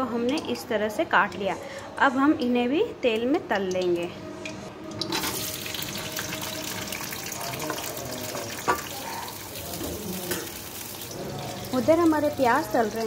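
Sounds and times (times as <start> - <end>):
onions sizzling in hot oil: 5.0 - 13.0.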